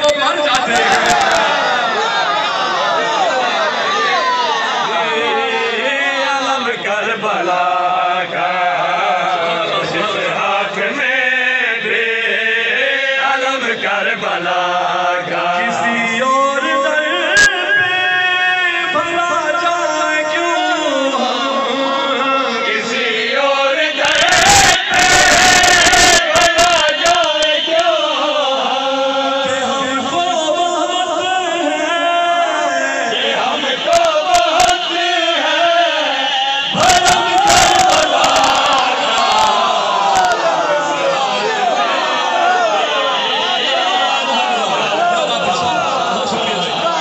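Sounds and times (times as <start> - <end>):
man chanting into microphone: 5.2 - 39.6
loud burst of noise: 24.0 - 27.2, 36.1 - 40.3.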